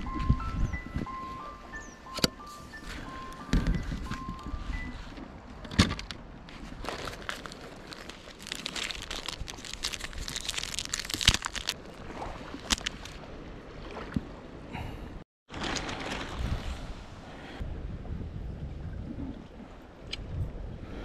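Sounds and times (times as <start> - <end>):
water splashing and lapping: 2.1 - 14.8, 15.5 - 17.6.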